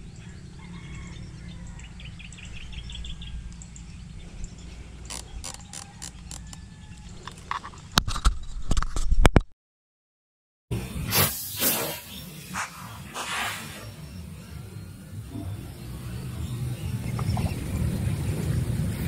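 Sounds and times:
small birds chirping: 0.0 - 7.3, 11.8 - 19.0
low outdoor rumble: 0.0 - 8.0, 12.1 - 19.0
clicks and scrapes handling gear: 5.1 - 6.6.

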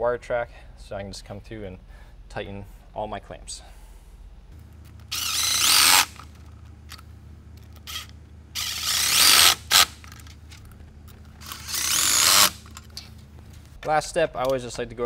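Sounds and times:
impact wrench whirring: 4.9 - 6.4, 7.8 - 10.2, 11.4 - 12.9.

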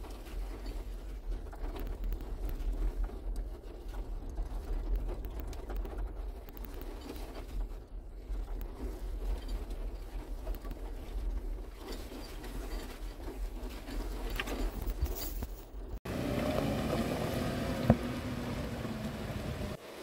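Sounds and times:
car engine rumble: 15.7 - 19.8.

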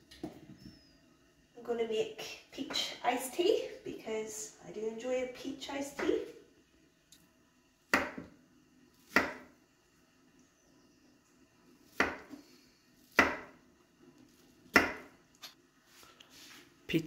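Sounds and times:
knife chopping on wooden board: 7.9 - 8.3, 9.1 - 9.5, 11.9 - 12.4, 13.1 - 13.6, 14.7 - 15.1.

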